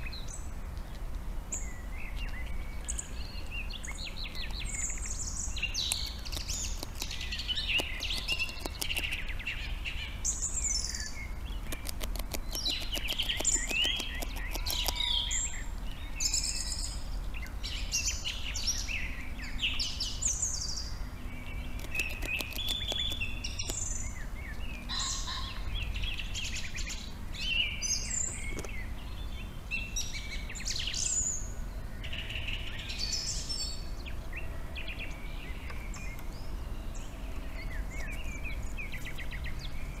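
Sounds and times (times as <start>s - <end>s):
birds singing and calling: 0.0s - 40.0s
quick run of clicks: 5.8s - 9.2s, 11.5s - 15.1s, 21.7s - 23.9s.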